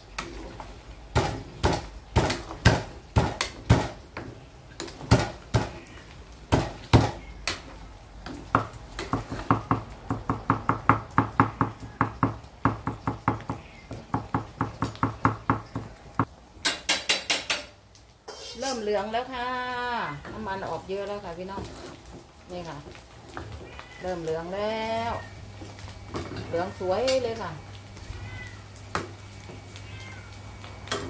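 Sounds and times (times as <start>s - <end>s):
metal spatula scraping a wok: 18.2s - 19.1s.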